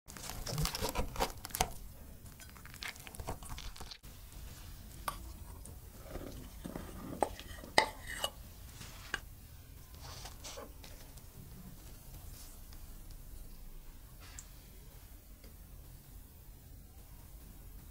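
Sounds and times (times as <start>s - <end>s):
knife crunching through crust: 0.2s - 1.8s, 2.4s - 4.0s.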